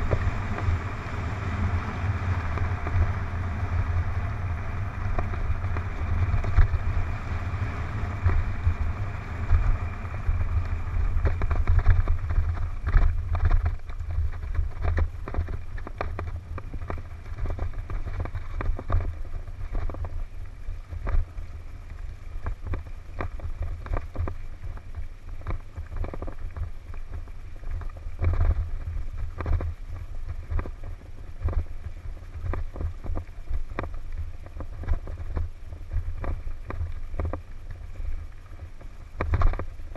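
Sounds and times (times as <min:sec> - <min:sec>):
bike knocking and rattling: 0:00.0 - 0:21.4, 0:22.0 - 0:39.9
wind buffeting microphone: 0:00.0 - 0:39.9.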